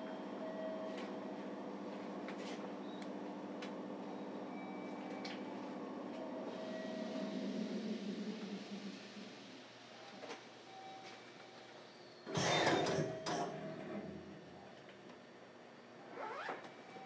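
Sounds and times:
train car hum: 0.0 - 14.8
low rumble: 6.4 - 9.9.

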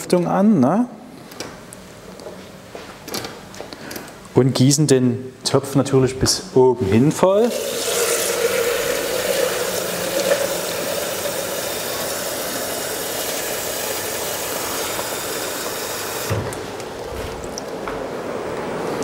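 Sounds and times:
extractor fan hum: 7.1 - 19.0
tap running into jug: 7.4 - 16.6.

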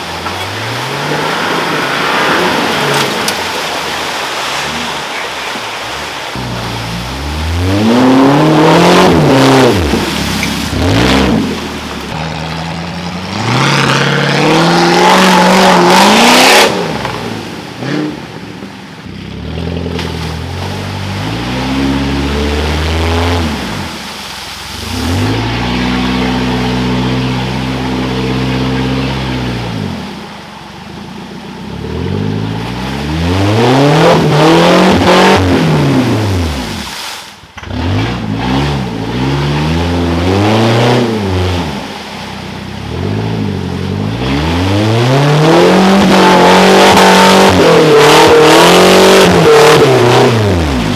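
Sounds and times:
vehicle engine revving: 0.0 - 30.5, 31.1 - 36.9, 37.6 - 50.9.

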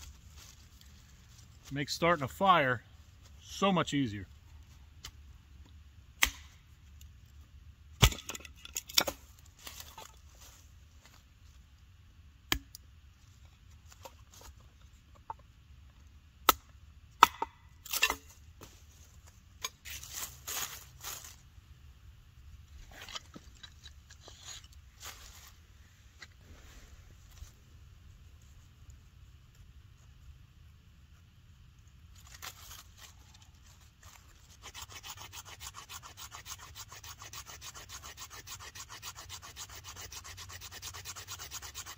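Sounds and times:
rustling of dry leaves and wood: 0.0 - 5.7, 8.2 - 11.8, 13.1 - 15.4, 17.8 - 21.8, 22.6 - 30.4, 31.1 - 41.9
hatchet chopping wood: 6.2 - 6.6, 8.0 - 9.2, 12.5 - 12.8, 16.4 - 18.2.

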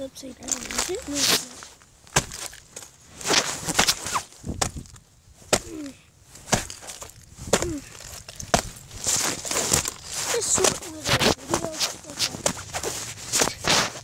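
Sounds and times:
thin ice cracking underfoot: 0.4 - 4.0, 6.6 - 12.4
ice shards crunching and scraping: 0.4 - 5.0, 5.6 - 14.0.

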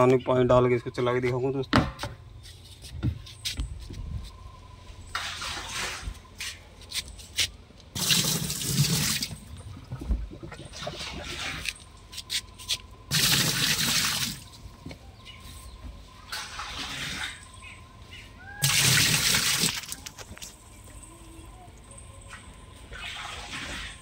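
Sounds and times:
water splashing into washing machine: 8.0 - 9.9, 13.1 - 14.5, 18.6 - 20.0.

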